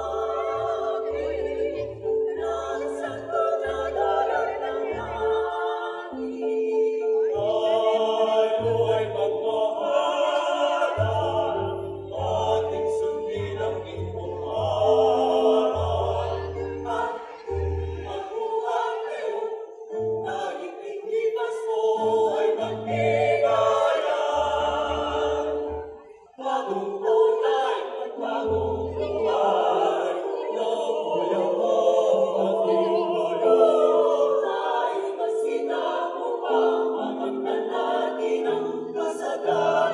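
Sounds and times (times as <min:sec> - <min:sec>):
mixed choir singing in harmony: 0:00.0 - 0:39.9.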